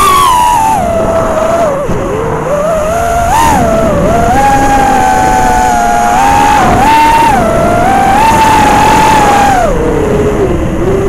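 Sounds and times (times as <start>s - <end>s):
drone motors whining: 0.0s - 11.0s.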